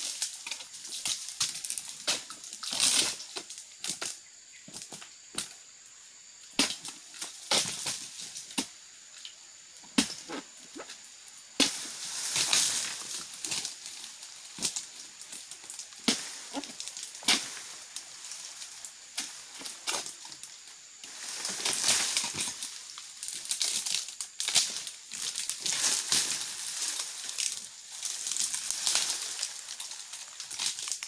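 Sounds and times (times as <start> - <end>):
dry palm fronds rustling: 0.0 - 5.2, 6.5 - 31.0
blade chopping into palm fronds: 6.6 - 8.7, 11.6 - 13.8, 16.0 - 17.8.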